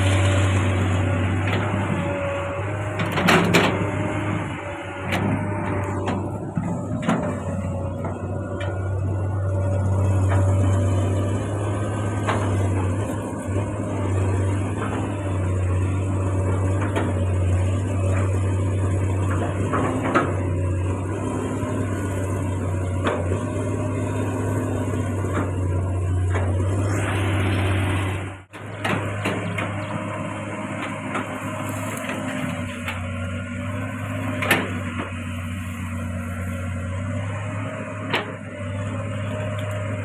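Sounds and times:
excavator diesel engine running: 0.0s - 40.0s.

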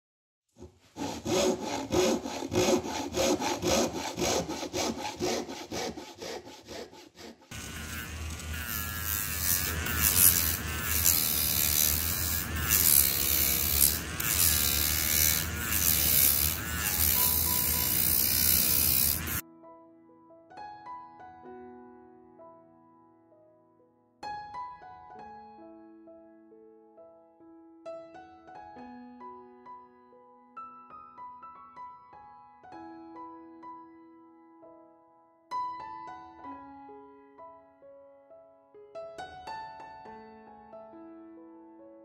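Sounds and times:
rhythmic scraping on wood: 0.6s - 19.4s
rotary tool sanding wood: 0.6s - 19.4s.

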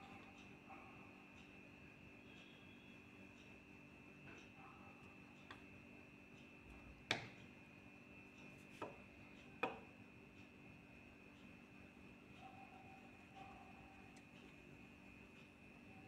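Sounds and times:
faint high whine: 0.0s - 7.0s, 10.0s - 16.0s
pencil tapping on paper: 7.1s - 7.4s, 8.7s - 9.0s, 9.6s - 9.9s.

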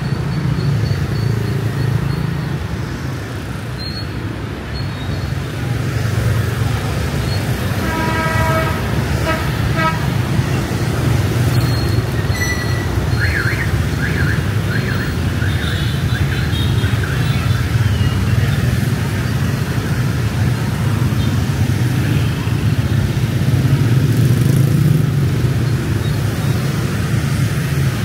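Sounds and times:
street traffic rumbling: 0.0s - 28.0s
vehicle horn honking: 7.8s - 10.4s.

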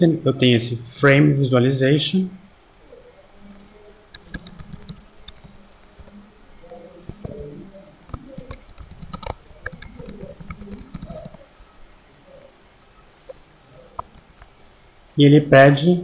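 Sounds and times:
typing on keyboard: 2.7s - 11.6s, 13.0s - 14.7s.

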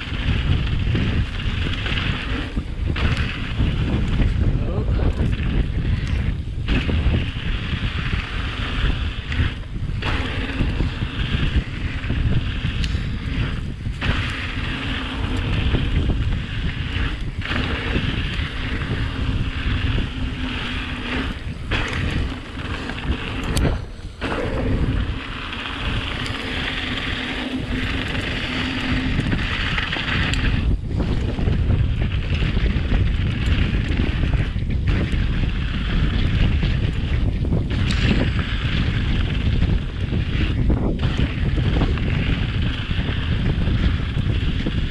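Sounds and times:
bike tyres rumbling on dirt: 0.0s - 44.9s
wind buffeting microphone: 0.0s - 44.9s.

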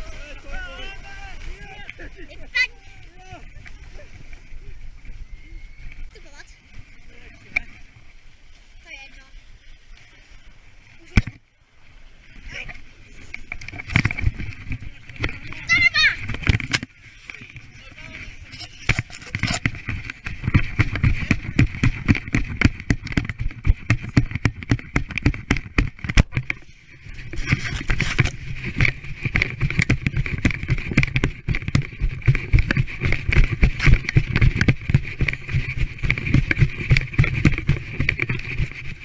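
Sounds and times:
sled runners scraping snow: 0.0s - 39.0s
sled knocking and rumbling: 12.5s - 39.0s.

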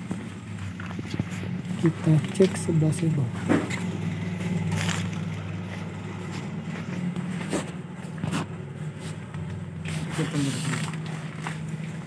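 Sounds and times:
shop background hum: 0.0s - 12.0s.

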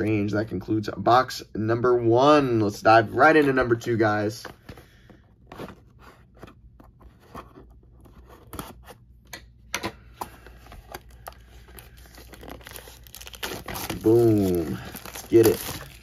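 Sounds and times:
shrink wrap crinkling and tearing: 10.8s - 16.0s.

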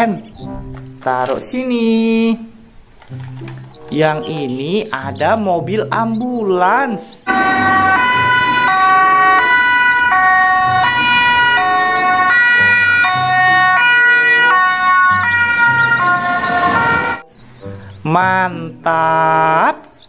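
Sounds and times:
two-tone ambulance siren: 7.3s - 17.3s.

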